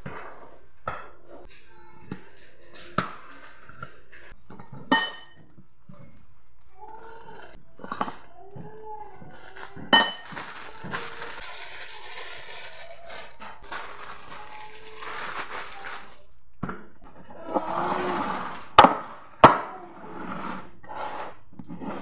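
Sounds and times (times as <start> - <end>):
plastic bag crinkling: 9.3 - 16.4.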